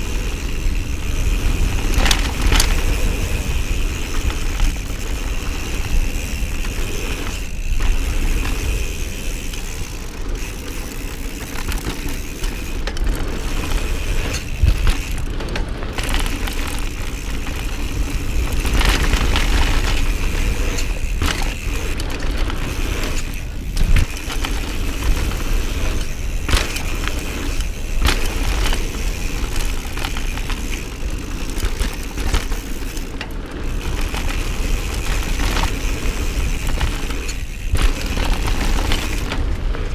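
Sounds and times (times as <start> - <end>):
tyres rolling over dirt: 0.0 - 39.9.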